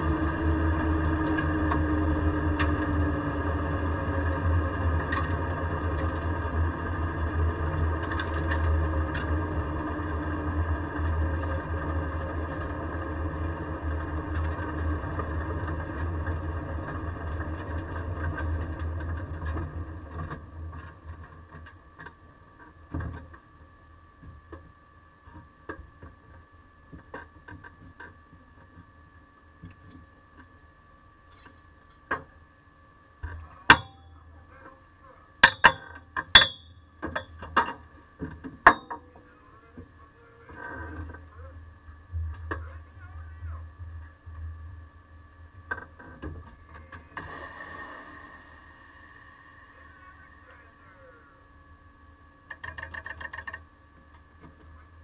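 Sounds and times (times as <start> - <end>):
faint high whine: 0.0 - 55.0
sharp clicks and knocks: 52.5 - 54.7.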